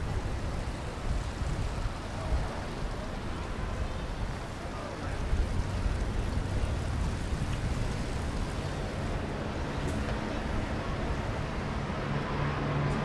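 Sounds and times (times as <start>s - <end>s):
rain: 0.0s - 13.0s
traffic: 0.0s - 13.0s.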